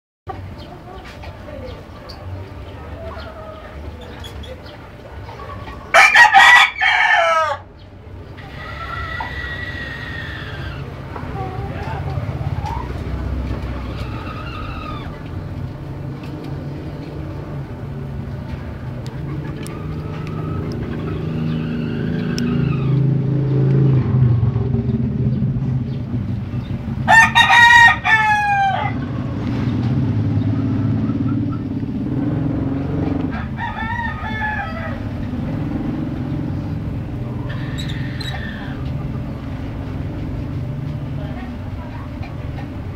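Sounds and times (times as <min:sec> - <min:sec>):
roosters crowing: 0:02.6 - 0:17.4, 0:18.8 - 0:23.4, 0:26.7 - 0:40.1
low rumble: 0:10.3 - 0:27.5.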